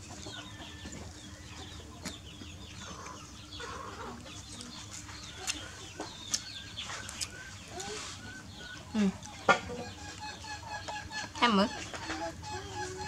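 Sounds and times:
bird calls and chirps: 0.0 - 13.0.

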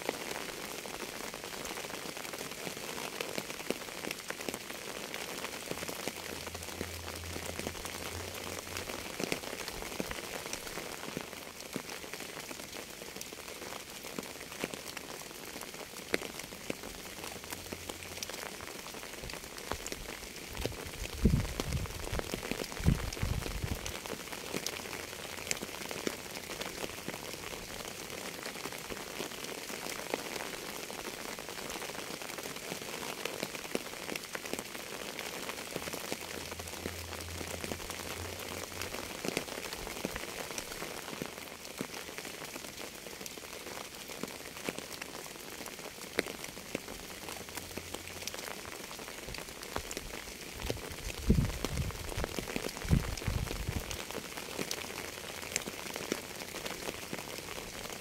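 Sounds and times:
steady rain patter: 0.0 - 58.0.

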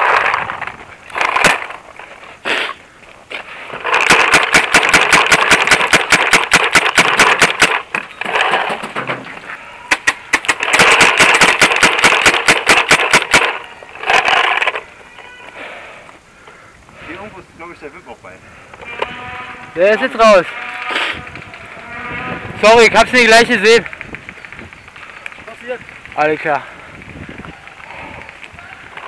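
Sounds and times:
paintball marker firing: 4.0 - 8.0, 9.9 - 13.6.

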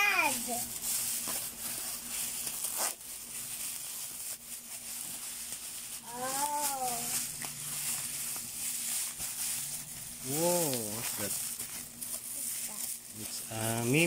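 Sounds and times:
child calling wordlessly: 0.0 - 0.6, 6.0 - 7.2
plastic wrapping crinkling: 0.0 - 14.0.

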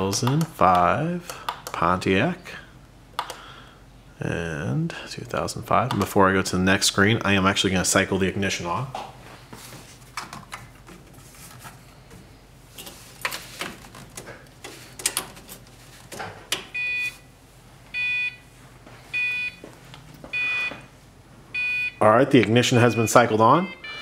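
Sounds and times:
car warning chime beeping: 16.8 - 17.2, 18.0 - 18.4, 19.1 - 19.6, 20.3 - 20.8, 21.6 - 22.1, 22.8 - 24.0.

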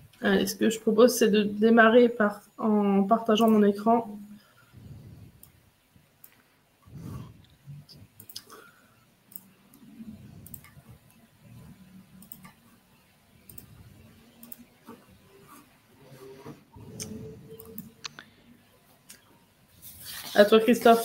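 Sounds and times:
faint low background noise: 0.0 - 21.0
computer mouse and keyboard clicks: 9.3 - 12.8, 13.4 - 18.3.

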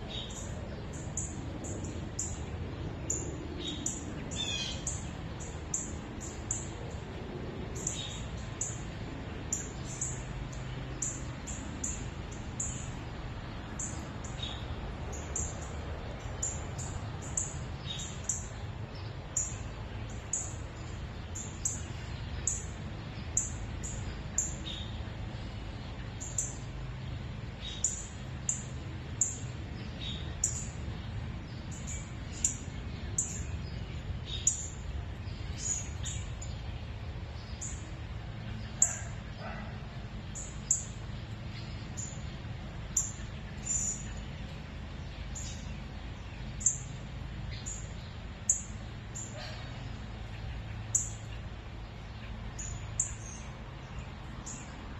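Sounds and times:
small bird chirping: 0.0 - 6.7, 25.9 - 54.8.

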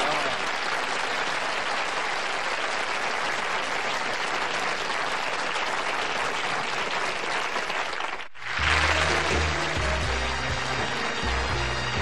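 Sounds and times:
studio audience applauding: 0.0 - 12.0
music: 8.5 - 12.0.

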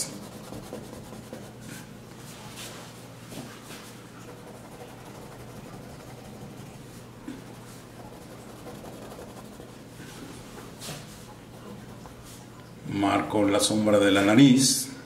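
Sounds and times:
pencil scratching on paper: 0.0 - 1.8, 3.7 - 10.3
steady low hum: 0.0 - 15.0.

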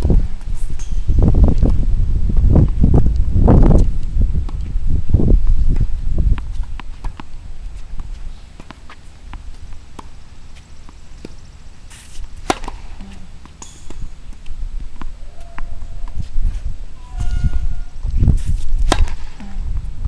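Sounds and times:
tennis ball bouncing: 6.3 - 16.3, 18.8 - 19.6
racket hitting ball: 8.0 - 16.2, 18.8 - 19.6
low rumble: 14.6 - 18.4.

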